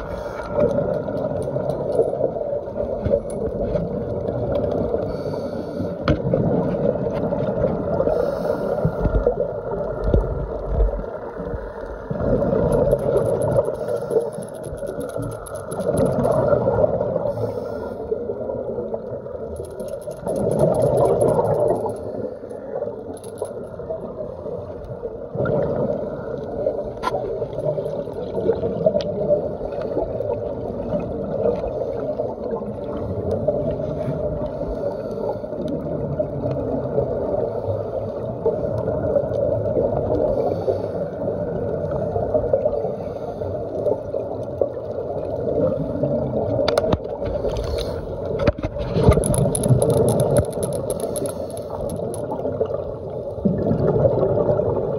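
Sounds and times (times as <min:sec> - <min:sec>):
faint clicks: 0:00.0 - 0:36.6, 0:46.4 - 0:53.4
underwater gurgling rumble: 0:00.0 - 0:54.9.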